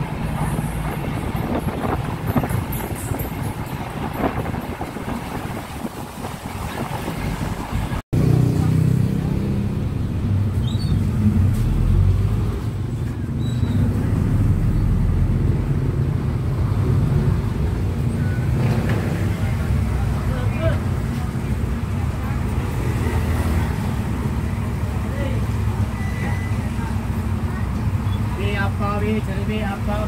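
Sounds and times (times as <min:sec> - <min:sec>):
low engine rumble: 0:00.0 - 0:30.0
road and wind noise: 0:00.0 - 0:30.0.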